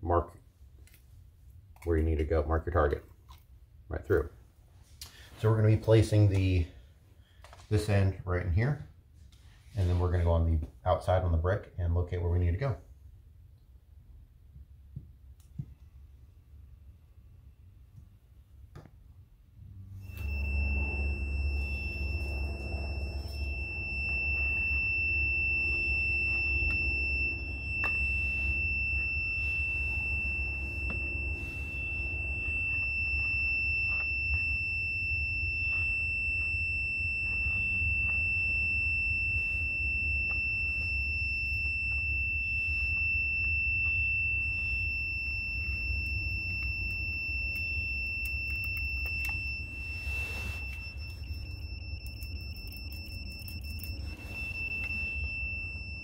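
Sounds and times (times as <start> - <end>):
steady low rumble: 19.5 - 56.0
continuous high-pitched beep: 19.9 - 56.0.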